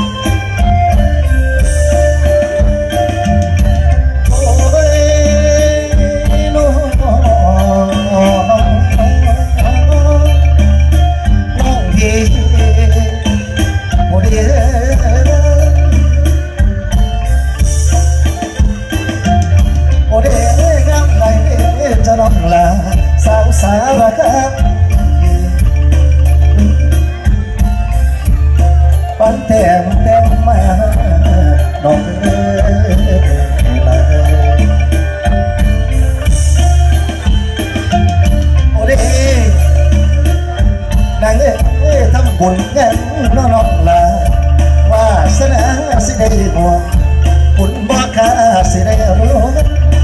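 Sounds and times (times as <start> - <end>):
band music with steady beat: 0.0 - 50.0
jingling percussion: 0.0 - 50.0
steady bass: 0.0 - 50.0
man singing ornamented vocal: 4.2 - 16.7, 20.0 - 25.8, 29.1 - 35.1, 38.6 - 40.4, 41.1 - 50.0.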